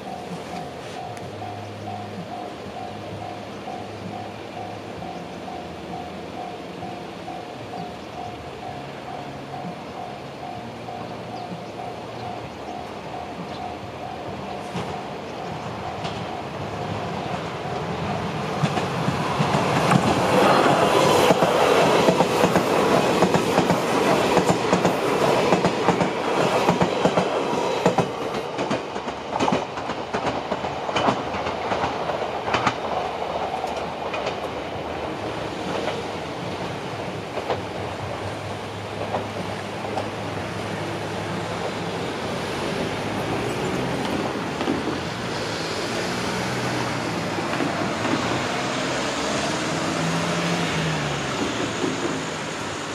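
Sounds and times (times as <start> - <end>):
train wheels clattering over rail joints: 14.6 - 40.3, 41.5 - 49.1, 50.0 - 52.6
car driving past: 48.0 - 51.7.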